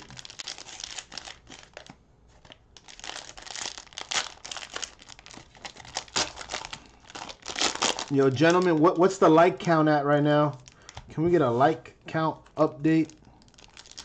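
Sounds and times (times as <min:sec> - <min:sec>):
wrapper tearing open: 0:00.0 - 0:08.9, 0:13.1 - 0:14.0
plastic wrapper crinkling: 0:00.0 - 0:09.2, 0:10.5 - 0:11.1, 0:12.9 - 0:14.0.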